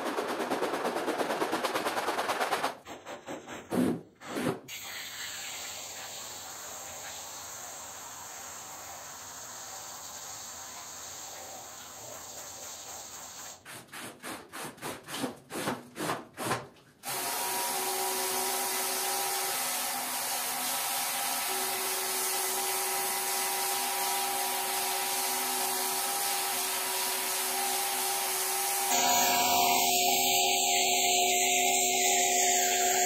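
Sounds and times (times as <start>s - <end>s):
water spray hissing: 4.7s - 13.6s
squeegee scraping wet rug: 11.4s - 16.7s.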